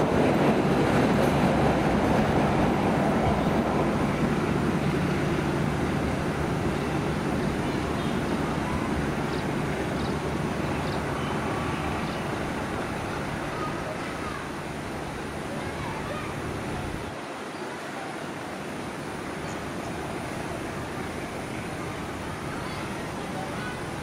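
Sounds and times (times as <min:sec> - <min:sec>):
train wheels rumbling on rails: 0:00.0 - 0:17.1.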